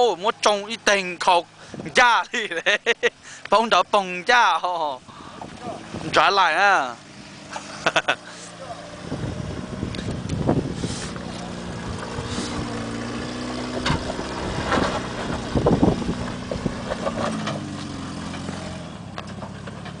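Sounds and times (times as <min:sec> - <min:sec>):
pickup engine running under load: 0:04.6 - 0:20.0.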